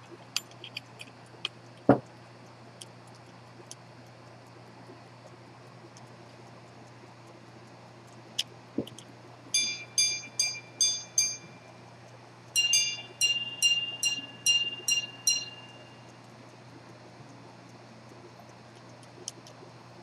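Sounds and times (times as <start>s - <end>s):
pocket watch gong strikes: 9.5s - 11.7s, 12.6s - 16.0s.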